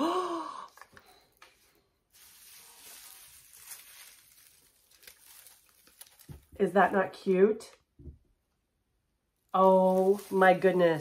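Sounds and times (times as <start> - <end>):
artificial wreath leaves rustling: 1.4 - 6.7, 9.5 - 11.0.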